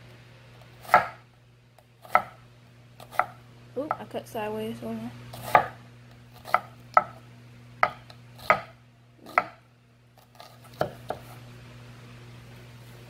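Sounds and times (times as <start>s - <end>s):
steady low hum: 0.0s - 13.0s
knife knocking on cutting board: 7.8s - 8.7s.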